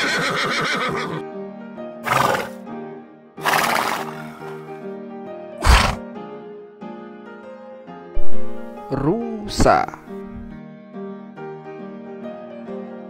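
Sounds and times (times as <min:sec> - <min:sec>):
horse whinnying: 0:00.0 - 0:01.2, 0:02.0 - 0:02.6, 0:03.4 - 0:04.6, 0:05.6 - 0:06.0
background music: 0:00.0 - 0:13.0
breathy horse calls: 0:02.0 - 0:02.6, 0:03.4 - 0:04.7, 0:05.6 - 0:06.0.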